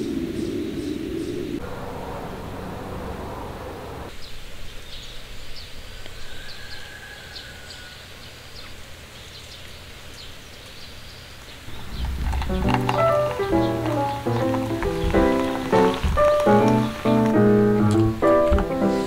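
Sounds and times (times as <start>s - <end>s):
steady low rumble: 0.0s - 4.1s, 11.7s - 17.4s
small animals chirping: 11.6s - 19.0s.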